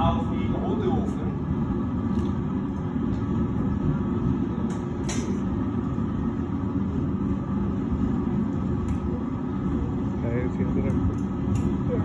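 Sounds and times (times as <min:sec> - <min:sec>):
furnace burners roaring: 0:00.0 - 0:12.0.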